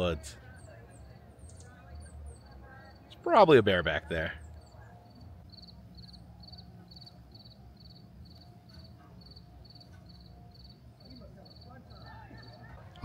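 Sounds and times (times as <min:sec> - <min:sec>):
insect chirping: 0:04.4 - 0:12.6.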